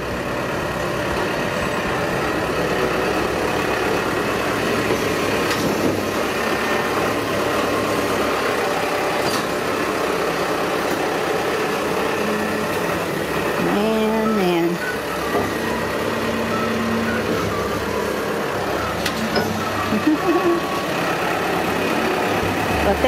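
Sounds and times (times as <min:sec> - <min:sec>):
tractor engine running: 0:00.0 - 0:23.0
loader bucket pushing into hay: 0:15.2 - 0:19.8.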